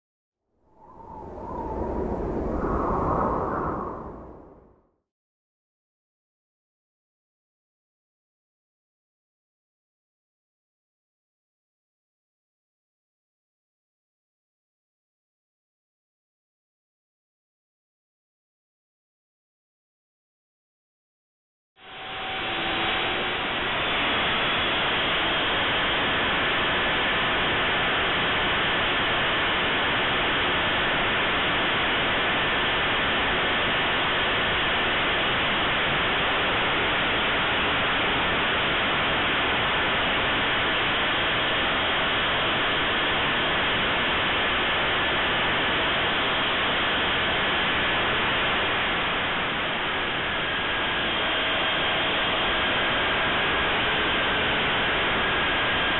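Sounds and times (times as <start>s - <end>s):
airflow rushing past: 0.7s - 4.8s.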